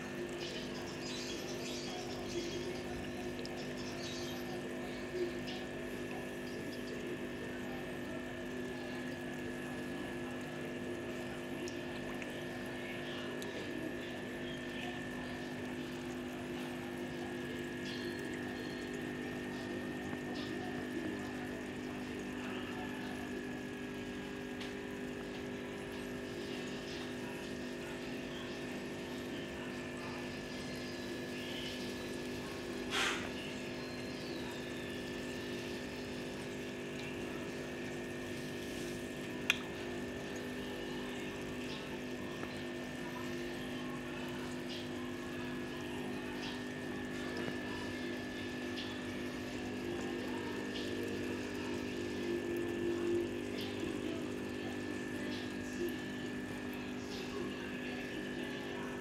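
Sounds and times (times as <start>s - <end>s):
pond pump humming: 0.0s - 59.0s
water bubbling and trickling: 0.0s - 59.0s.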